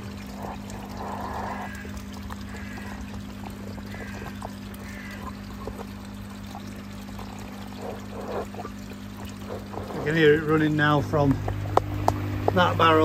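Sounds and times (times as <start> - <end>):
steady low hum: 0.0 - 13.0
water pouring and splashing: 0.0 - 13.0.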